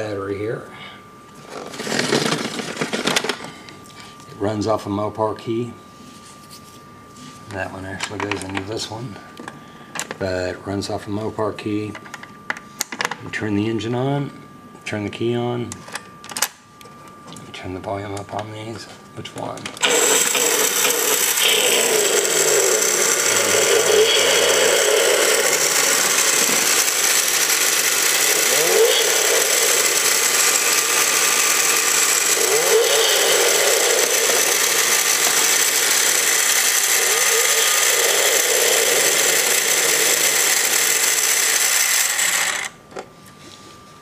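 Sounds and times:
recorded engine idling and revving: 0:19.8 - 0:42.6.

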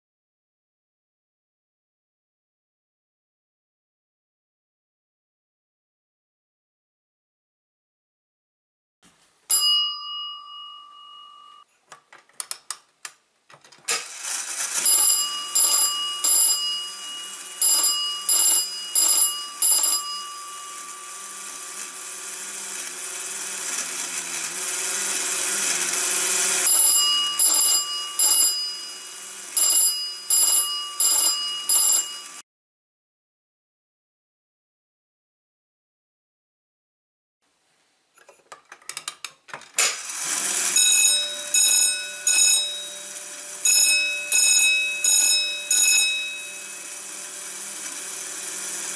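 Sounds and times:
fire alarm bell ringing: 0:09.5 - 0:11.7, 0:14.7 - 0:22.0, 0:26.4 - 0:32.4, 0:40.6 - 0:47.8
single bell ding: 0:09.5 - 0:11.7.

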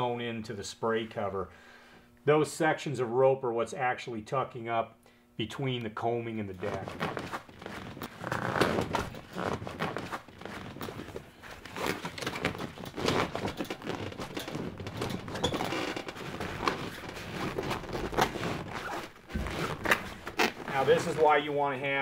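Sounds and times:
fabric rustling and scuffing: 0:06.6 - 0:21.7.

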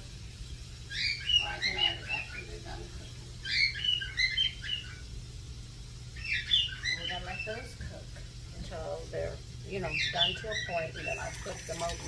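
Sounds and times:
bird chirping: 0:00.5 - 0:05.2, 0:06.1 - 0:07.8, 0:09.7 - 0:11.9.

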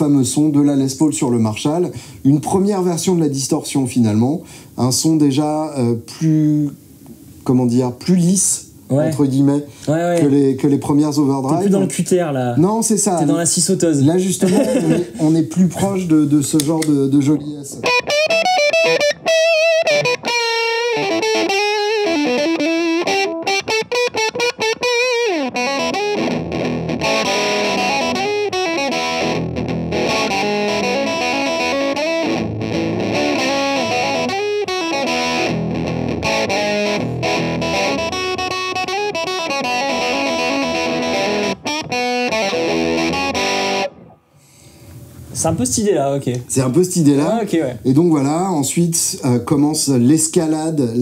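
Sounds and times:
distorted electric guitar lead: 0:17.8 - 0:44.3.

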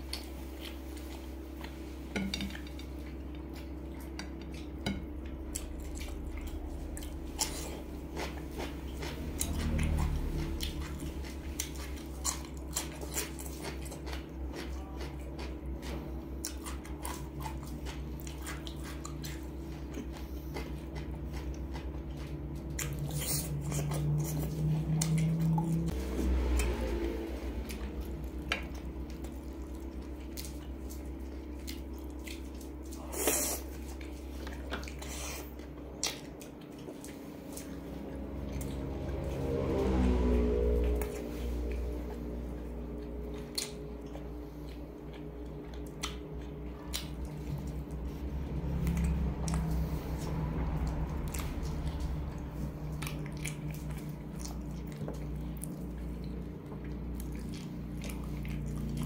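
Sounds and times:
chewing: 0:00.0 - 0:59.0
steady low hum: 0:00.0 - 0:59.0.

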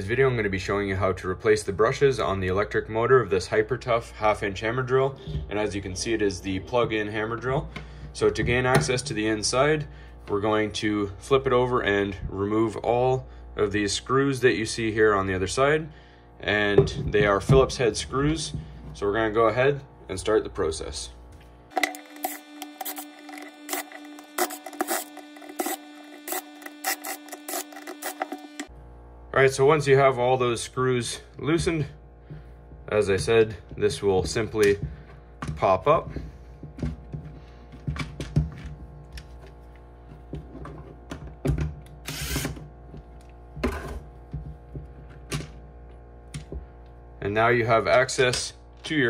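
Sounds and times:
drill motor whining: 0:21.7 - 0:28.7, 0:42.0 - 0:42.6
short scraping rasps: 0:21.9 - 0:28.7.

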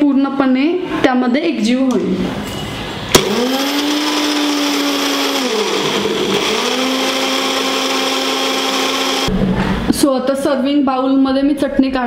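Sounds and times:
mixer grinder motor whine: 0:03.1 - 0:09.3.

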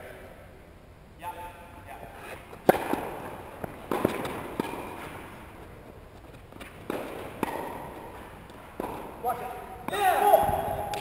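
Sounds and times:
tennis balls struck and bouncing: 0:02.3 - 0:11.0.

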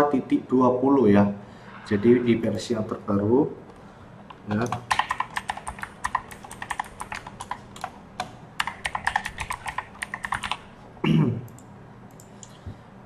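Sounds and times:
keyboard typing clicks: 0:04.3 - 0:10.6.

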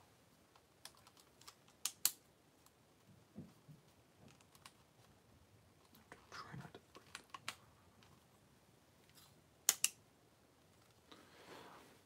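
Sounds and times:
plastic toy parts clicking: 0:09.7 - 0:10.0.

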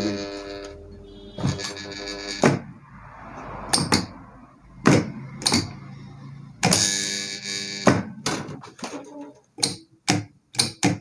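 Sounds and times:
contactor coil buzzing: 0:00.0 - 0:02.9, 0:04.9 - 0:09.0
contactors clacking: 0:04.8 - 0:05.9, 0:06.6 - 0:11.0.

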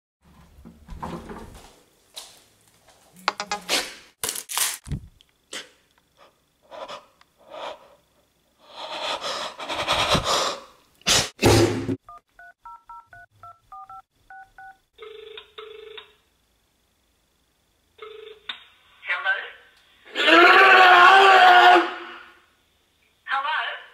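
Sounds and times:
touch-tone keypad beeps: 0:12.1 - 0:14.8.

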